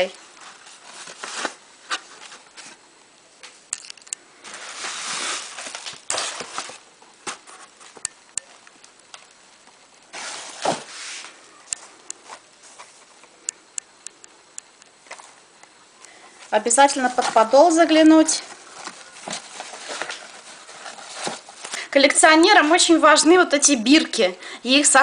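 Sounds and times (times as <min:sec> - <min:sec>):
rustling and scraping of cardboard: 0:00.2 - 0:03.6, 0:04.4 - 0:08.1, 0:10.1 - 0:13.2, 0:16.4 - 0:21.8.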